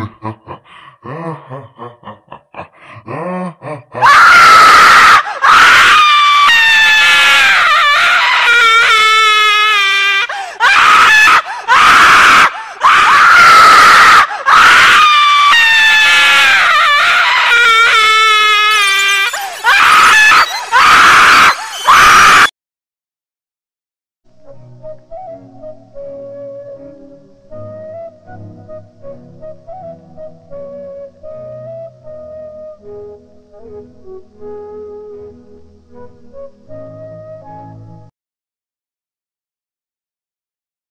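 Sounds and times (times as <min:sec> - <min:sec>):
shrill screaming: 0:04.0 - 0:22.6.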